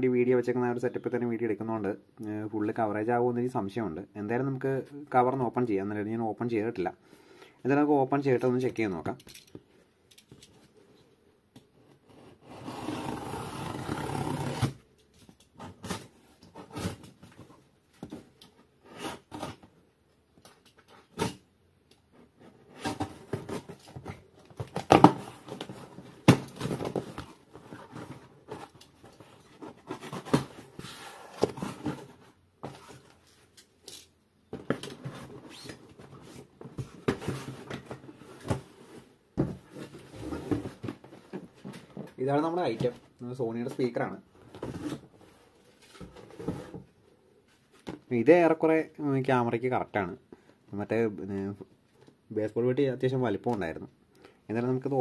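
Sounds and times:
cardboard tearing: 0:12.4 - 0:14.8
cardboard and packing rustling: 0:22.1 - 0:33.6, 0:34.5 - 0:48.2.

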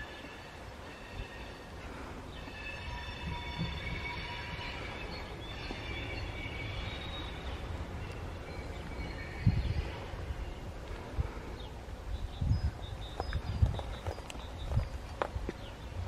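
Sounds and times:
train wheel flanges squealing: 0:00.0 - 0:10.2
low train rumble: 0:00.0 - 0:16.0.

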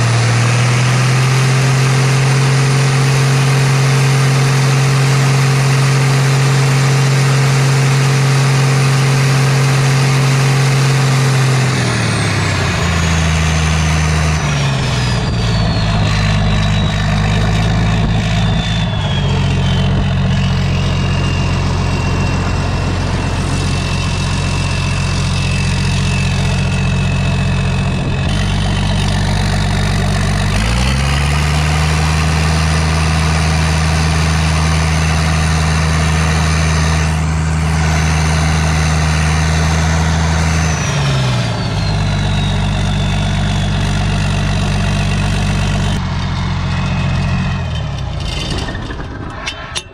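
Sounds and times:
diesel engine idling and revving: 0:00.0 - 0:49.9
turbo whistle: 0:14.2 - 0:26.6, 0:40.4 - 0:44.4.

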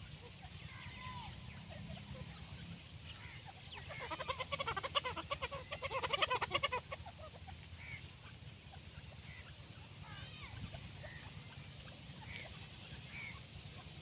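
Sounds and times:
bird chattering call: 0:03.1 - 0:08.1.

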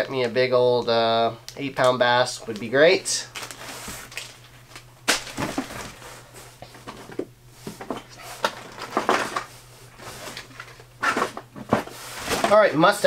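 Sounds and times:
plastic packets rustling in cardboard box: 0:03.3 - 0:06.0.

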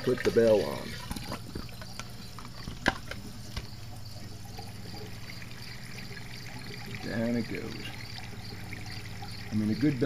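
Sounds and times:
steady low hum: 0:00.0 - 0:10.0
water trickling and draining: 0:00.0 - 0:10.0.

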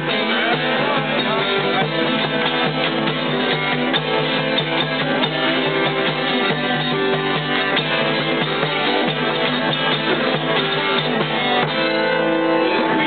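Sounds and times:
acoustic guitar strumming: 0:00.0 - 0:13.0
hand drum: 0:00.0 - 0:13.0.

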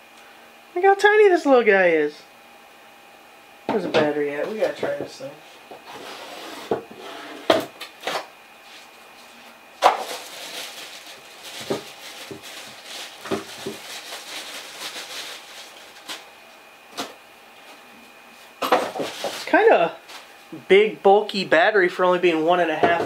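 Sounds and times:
plastic bag crinkling: 0:09.8 - 0:16.2.

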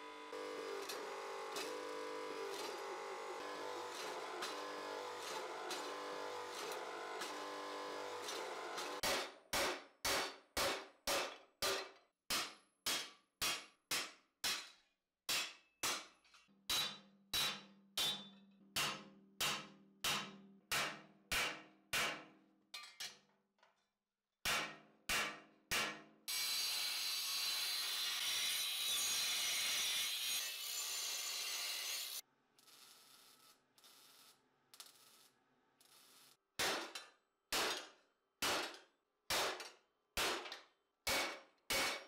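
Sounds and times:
angle grinder grinding steel: 0:27.7 - 0:32.2.

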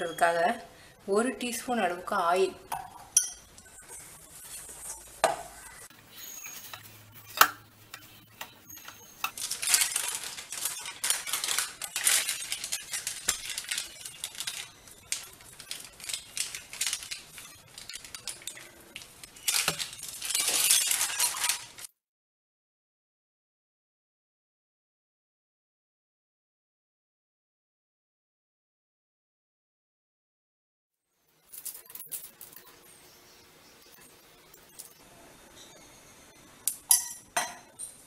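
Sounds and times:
plastic sheet crinkling: 0:05.8 - 0:21.9, 0:31.4 - 0:32.8.

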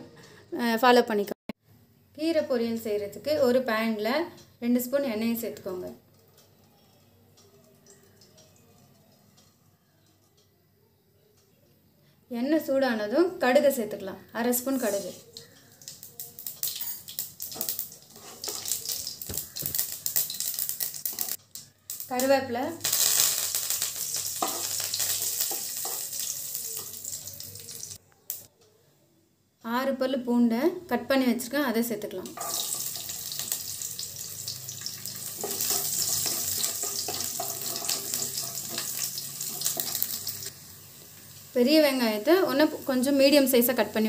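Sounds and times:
seeds popping in hot oil: 0:14.5 - 0:28.5, 0:32.2 - 0:44.0
wooden spatula scraping pan: 0:18.1 - 0:18.7.

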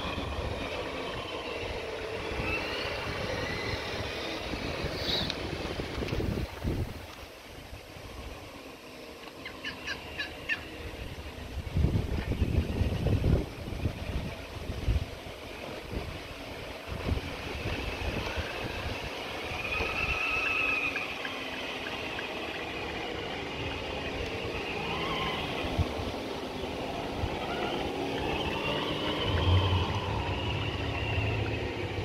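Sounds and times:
electric motor whine: 0:16.9 - 0:32.0.

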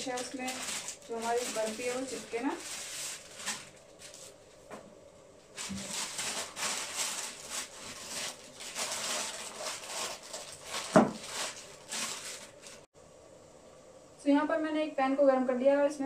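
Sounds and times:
baking paper rustling: 0:00.0 - 0:04.5, 0:05.5 - 0:12.9.

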